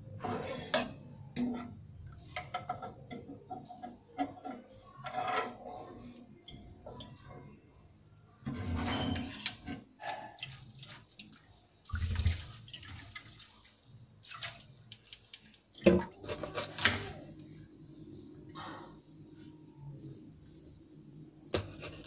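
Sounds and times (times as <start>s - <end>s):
water splashing and pouring: 10.2s - 16.3s.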